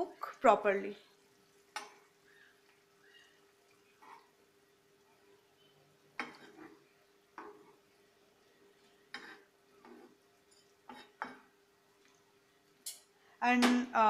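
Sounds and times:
faint steady hum: 0.0 - 14.0
spatula scraping frying pan: 1.5 - 4.4, 6.1 - 7.9, 8.9 - 11.5.

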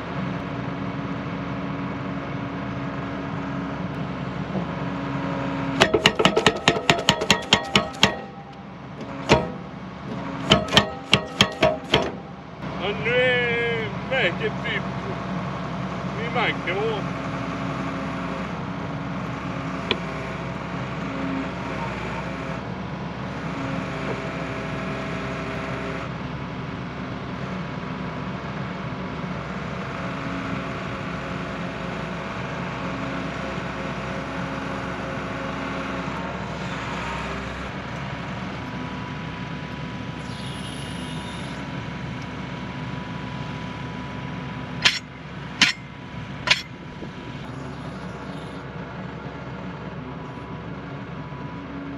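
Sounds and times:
diesel engine running: 0.0 - 51.9
sharp knocks: 5.8 - 12.4, 44.8 - 45.8, 46.5 - 46.7.

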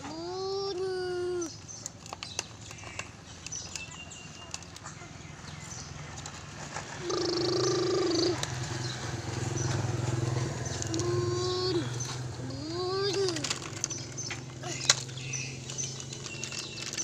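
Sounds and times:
toy trucks scraping in soil: 5.8 - 8.9, 10.7 - 17.0.

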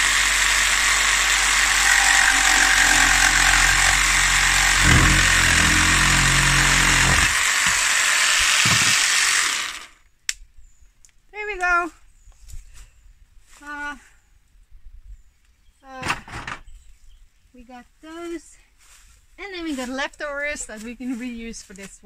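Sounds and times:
jigsaw cutting wood: 0.0 - 10.0.

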